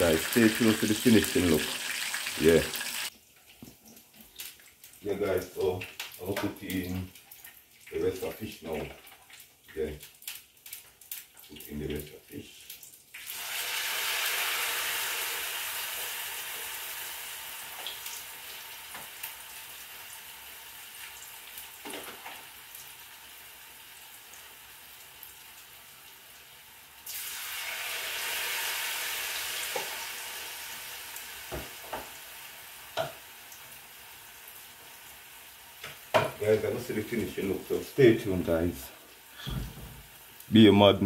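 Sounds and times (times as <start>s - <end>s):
fish sizzling in hot oil: 0.0s - 3.2s, 13.1s - 40.7s.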